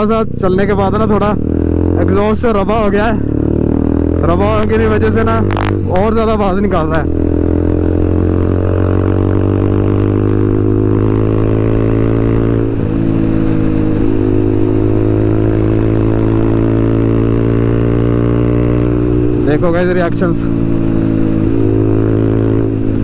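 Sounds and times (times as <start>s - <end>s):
rider speaking: 0.0s - 3.4s, 4.1s - 7.3s, 19.3s - 20.8s
motorcycle engine at high rpm: 0.0s - 23.0s.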